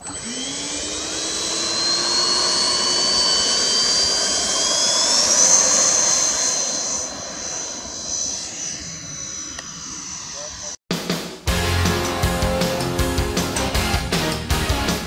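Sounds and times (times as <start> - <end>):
electric ducted fans whining: 0.0 - 10.8.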